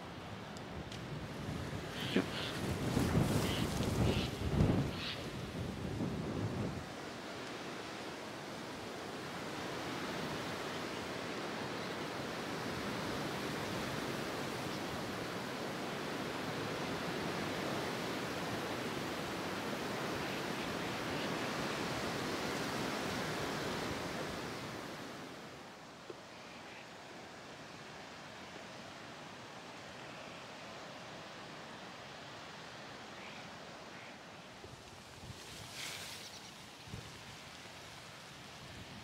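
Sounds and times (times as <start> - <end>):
wind roaring over microphone: 0.7 - 7.0.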